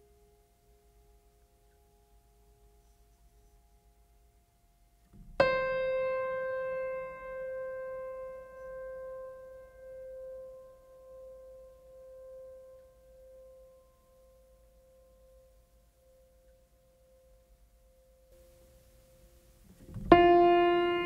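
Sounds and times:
piano note ringing: 0:05.2 - 0:13.6, 0:18.4 - 0:21.0.

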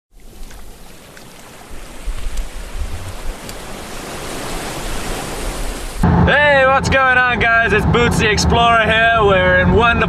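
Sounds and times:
waves washing on beach: 0:00.2 - 0:06.4
wind buffeting microphone: 0:00.3 - 0:10.0.

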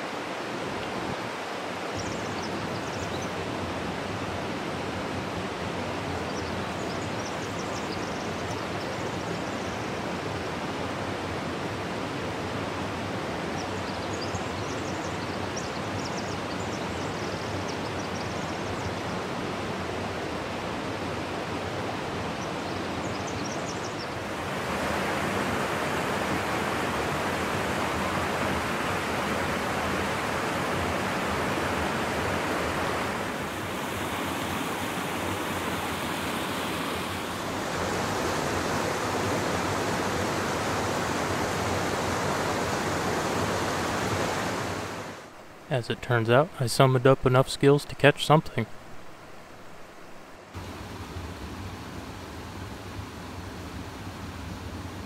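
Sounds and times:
river flowing over rocks: 0:19.0 - 0:45.7.

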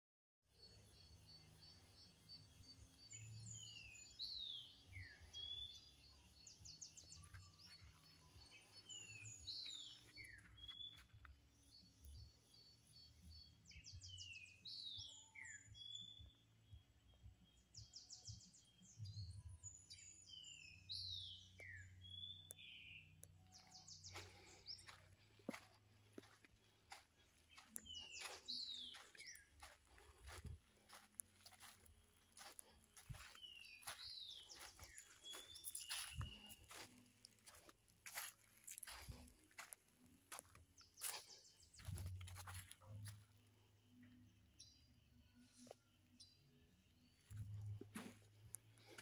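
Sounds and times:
faint birdsong: 0:00.5 - 0:49.0.

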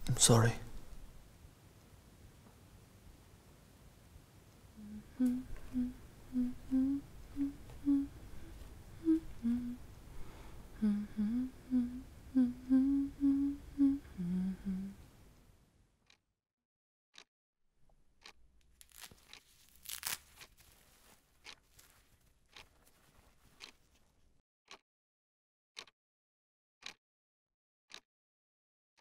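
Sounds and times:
woman humming a tune: 0:04.8 - 0:10.0, 0:10.8 - 0:15.0.

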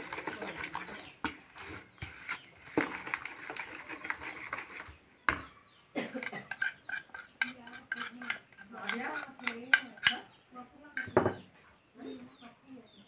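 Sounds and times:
spoon stirring batter in bowl: 0:00.0 - 0:10.4, 0:11.0 - 0:11.4
spoon clinking against bowl: 0:06.2 - 0:10.3, 0:11.0 - 0:11.4.

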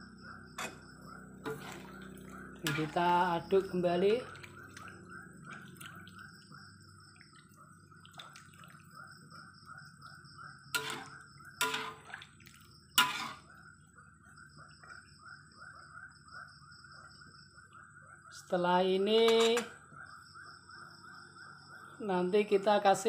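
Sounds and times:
spatula scraping a wok: 0:00.6 - 0:00.8, 0:01.4 - 0:02.0, 0:10.8 - 0:12.0, 0:13.0 - 0:13.5
stew simmering: 0:00.6 - 0:09.5, 0:10.5 - 0:13.6.

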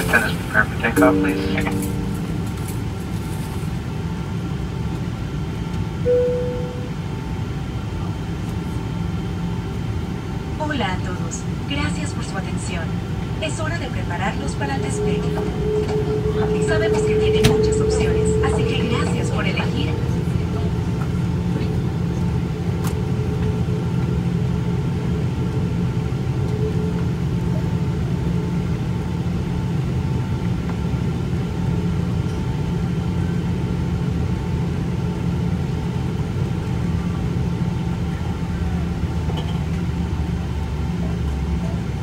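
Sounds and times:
jet engines low rumble: 0:00.0 - 0:42.0
faint whining tones: 0:13.0 - 0:23.5.

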